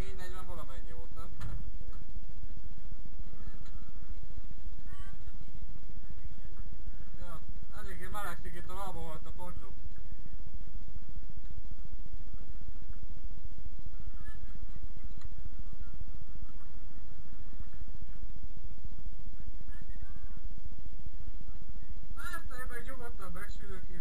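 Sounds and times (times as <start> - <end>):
faint voices: 0.0 - 10.8, 13.6 - 24.0.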